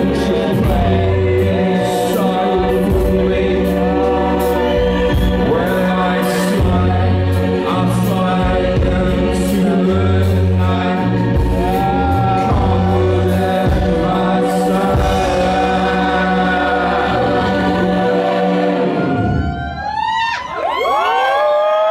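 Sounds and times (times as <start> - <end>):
rock band playing: 0.0 - 19.9
person singing: 0.0 - 20.4
crowd cheering and whistling: 4.0 - 6.8, 11.5 - 12.7, 18.8 - 21.9.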